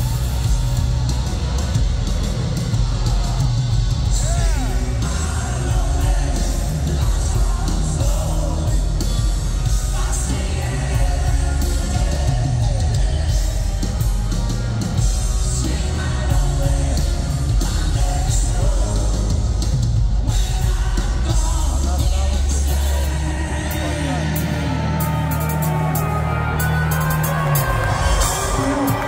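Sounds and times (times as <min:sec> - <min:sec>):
live rock band playing: 0:00.0 - 0:29.0
man singing into a microphone: 0:04.1 - 0:09.3, 0:15.5 - 0:19.4, 0:20.2 - 0:25.2.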